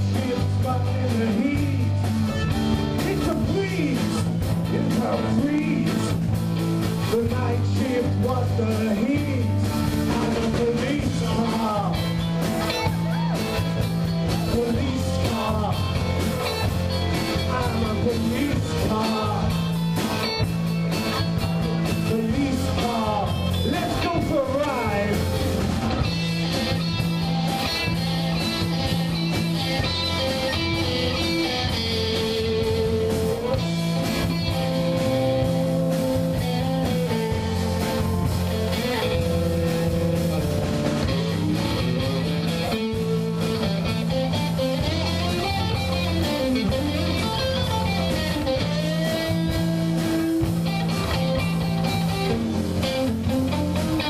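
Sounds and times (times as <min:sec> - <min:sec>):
man singing: 0:00.0 - 0:06.3, 0:07.0 - 0:12.8, 0:14.2 - 0:19.8, 0:21.8 - 0:25.4, 0:29.7 - 0:38.0
distorted electric guitars: 0:00.0 - 0:54.0
drum kit: 0:00.0 - 0:54.0
electric bass: 0:00.0 - 0:54.0.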